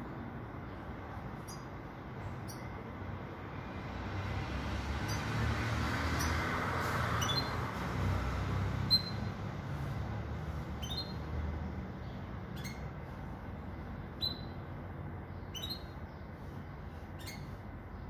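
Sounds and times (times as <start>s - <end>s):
road traffic rumble: 0.0s - 18.0s
bird chirps: 1.4s - 2.8s, 7.2s - 7.7s, 8.8s - 9.3s, 10.6s - 11.4s, 12.0s - 13.3s, 14.1s - 14.7s, 15.3s - 18.0s.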